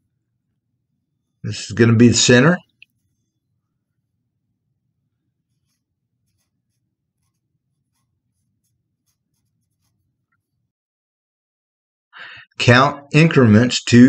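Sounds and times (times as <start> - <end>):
low room hum: 0.0 - 10.7.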